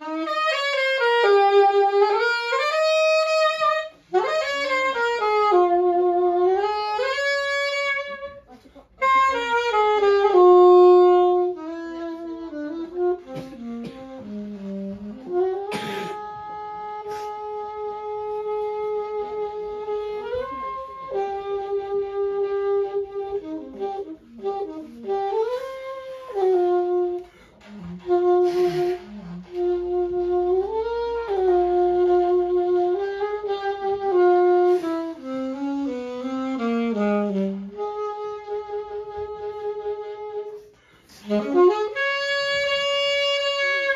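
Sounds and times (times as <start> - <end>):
saxophone playing slow melody: 0.0 - 43.9.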